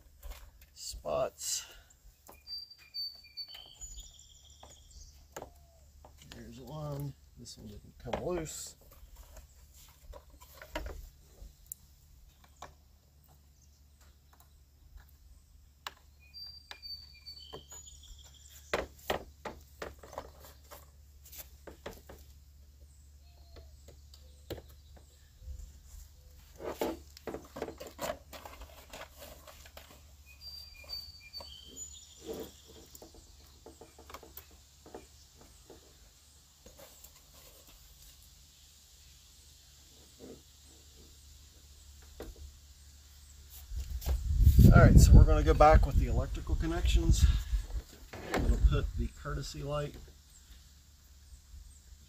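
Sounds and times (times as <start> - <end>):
bird chirping: 1.9 - 10.7, 11.3 - 19.0, 22.7 - 26.5, 29.8 - 37.6.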